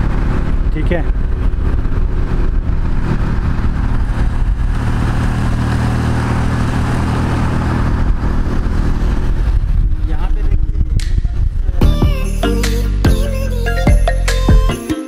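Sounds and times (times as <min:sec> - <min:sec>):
rushing air and road noise: 0:00.0 - 0:11.9
motorcycle engine running: 0:00.0 - 0:12.2.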